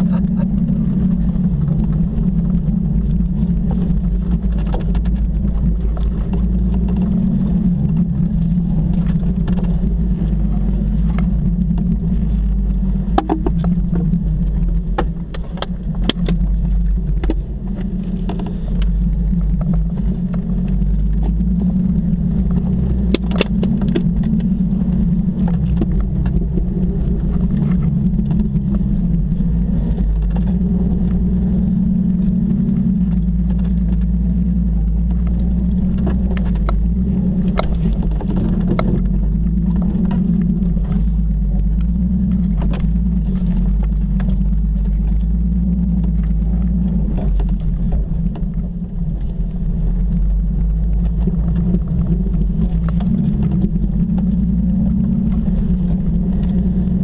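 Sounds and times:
knocks and rattles: 0:00.0 - 0:31.4
car engine running: 0:00.0 - 0:57.0.

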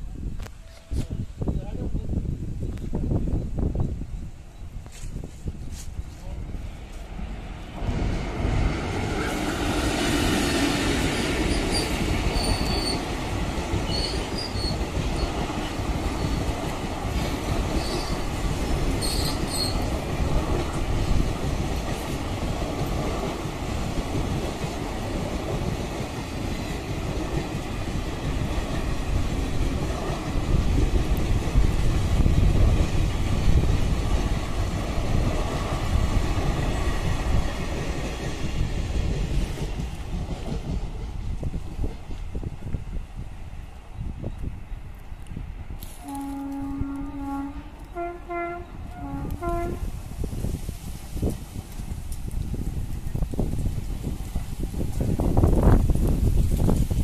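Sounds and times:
train wheels rumbling on rails: 0:00.0 - 0:57.0
high squeals: 0:11.5 - 0:13.1, 0:19.0 - 0:19.9.

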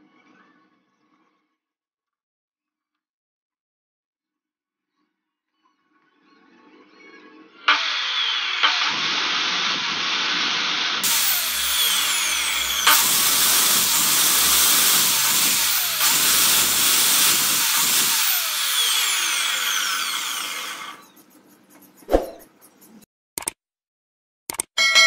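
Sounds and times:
chop saw motor whining: 0:07.7 - 0:21.3.

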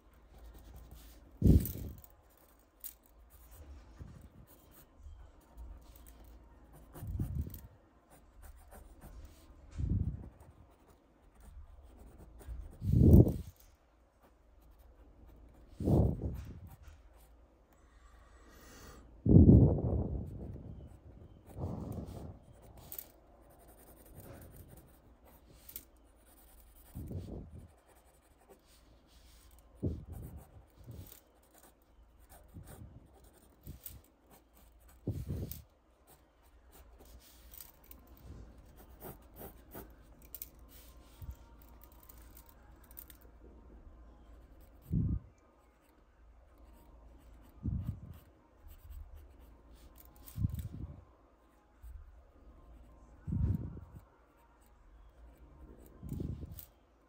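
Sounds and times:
pencil scratching on paper: 0:03.2 - 0:09.6, 0:10.2 - 0:13.6, 0:20.8 - 0:42.5.

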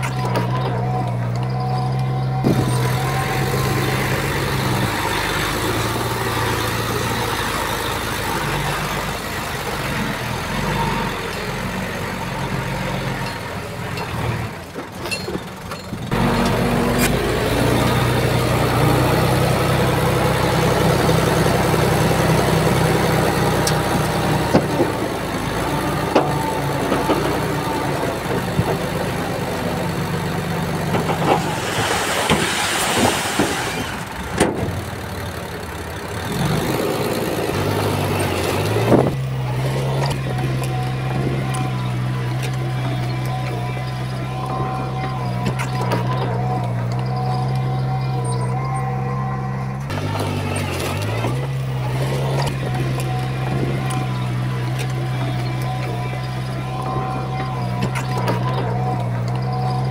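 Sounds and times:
bulldozer diesel engine: 0:00.0 - 0:59.9
burst of hiss: 0:31.4 - 0:34.1.

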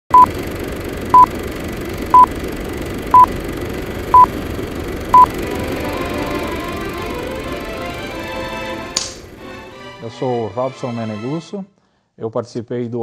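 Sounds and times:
steady low noise: 0:00.3 - 0:09.8
countdown beeps: 0:05.1 - 0:05.3
faint music: 0:05.2 - 0:11.6.

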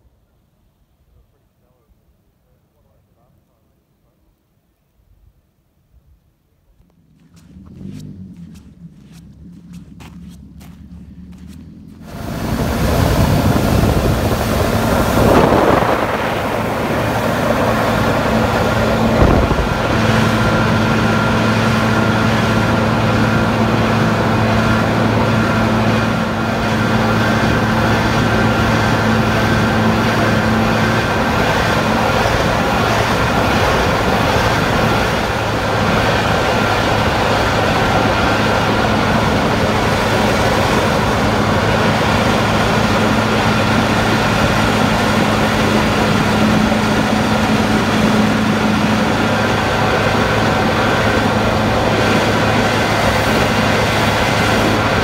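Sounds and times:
jet boat engine drone: 0:06.9 - 0:55.0
water rushing under hull: 0:12.0 - 0:55.0.

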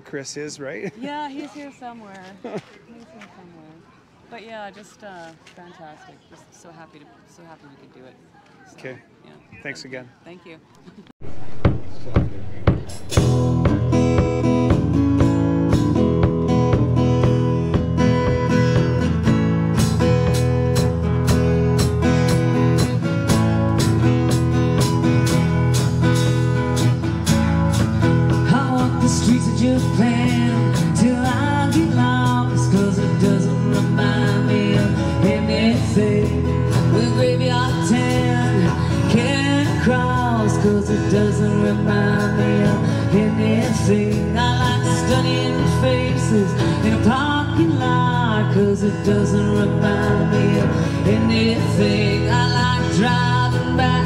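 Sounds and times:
strummed acoustic guitars: 0:11.2 - 0:54.0
woman singing lead vocal: 0:28.3 - 0:54.0.

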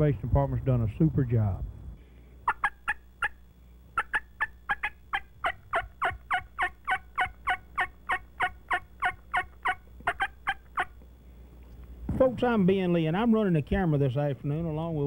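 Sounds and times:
turkey call yelps: 0:02.4 - 0:11.0.

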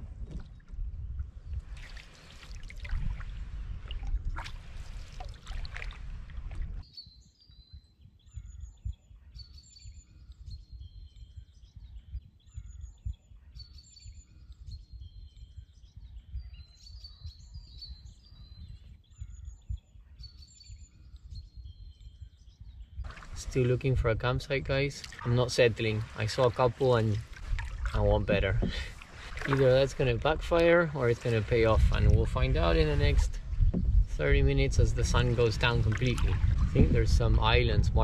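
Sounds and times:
water splashing from canoe paddling: 0:01.3 - 0:06.8, 0:23.1 - 0:24.0, 0:24.7 - 0:37.4
songbirds singing: 0:06.8 - 0:38.0.

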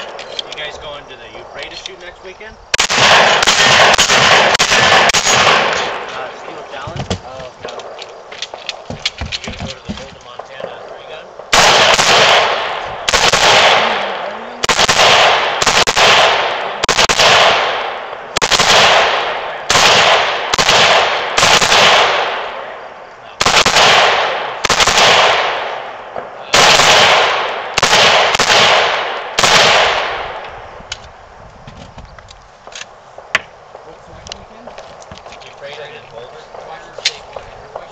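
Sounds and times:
gunshots with echo: 0:02.8 - 0:08.0, 0:11.4 - 0:22.8, 0:23.4 - 0:30.4.

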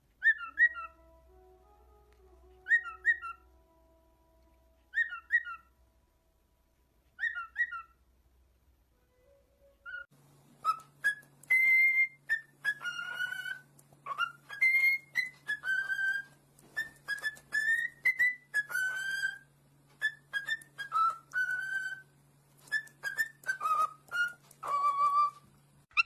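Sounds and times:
cockatiel whistling a tune: 0:00.2 - 0:01.2, 0:02.5 - 0:03.6, 0:04.9 - 0:05.7, 0:07.2 - 0:08.0, 0:09.6 - 0:26.0
cockatiel two-note chirp: 0:00.2 - 0:03.6, 0:04.4 - 0:05.7.

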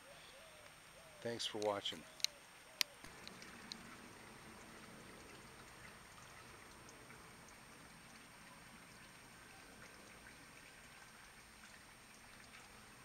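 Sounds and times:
water trickling into pond: 0:00.4 - 0:13.0.

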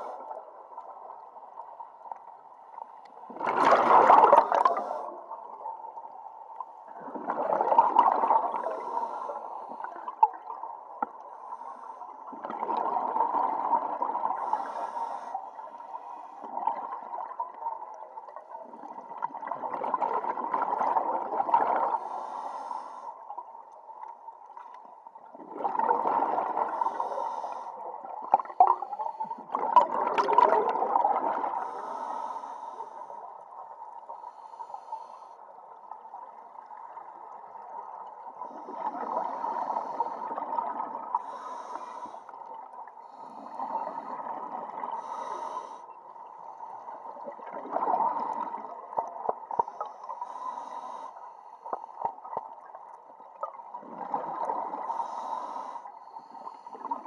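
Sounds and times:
bubbles gurgling underwater: 0:03.2 - 0:05.7, 0:07.0 - 0:09.2, 0:12.3 - 0:14.5, 0:16.4 - 0:22.0, 0:25.3 - 0:26.9, 0:28.1 - 0:31.7, 0:47.1 - 0:49.6, 0:53.3 - 0:54.9
diver breathing through regulator: 0:08.5 - 0:10.2, 0:14.3 - 0:16.5, 0:21.8 - 0:23.2, 0:26.6 - 0:29.5, 0:31.5 - 0:33.3, 0:34.0 - 0:35.4, 0:38.4 - 0:40.5, 0:41.1 - 0:42.4, 0:43.0 - 0:44.3, 0:44.9 - 0:46.9, 0:49.5 - 0:52.1, 0:54.5 - 0:57.0.

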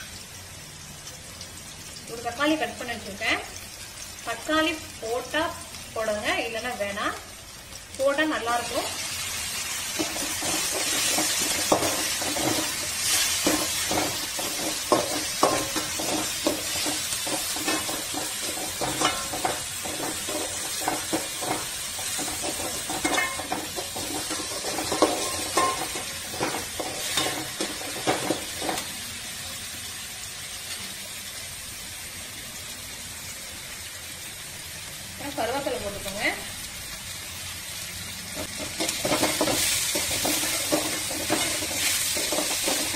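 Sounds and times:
onions frying in hot oil: 0:00.0 - 0:42.9
metal spatula scraping pan: 0:09.9 - 0:28.9, 0:38.4 - 0:42.9.

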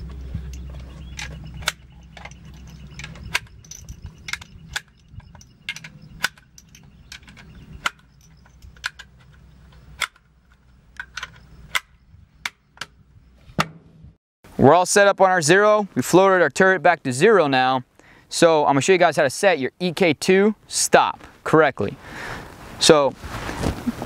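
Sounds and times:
cartridges clicking into magazine: 0:01.1 - 0:10.3.

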